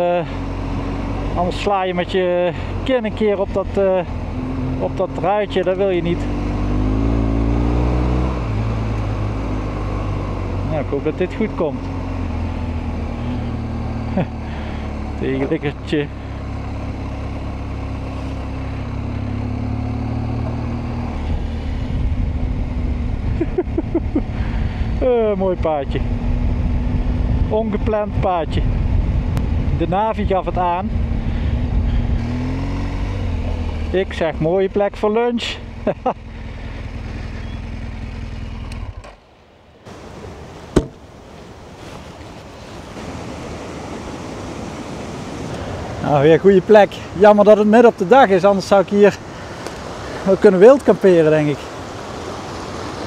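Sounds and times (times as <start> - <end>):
motorcycle engine running: 0.0 - 39.2
motorcycle engine idling: 33.4 - 39.1.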